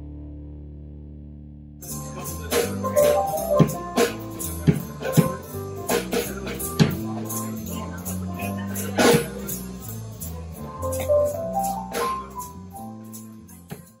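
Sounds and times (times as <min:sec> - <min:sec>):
bass notes: 0:00.0 - 0:14.0
live band playing upbeat song: 0:01.8 - 0:13.8
drum hits: 0:02.2 - 0:07.5.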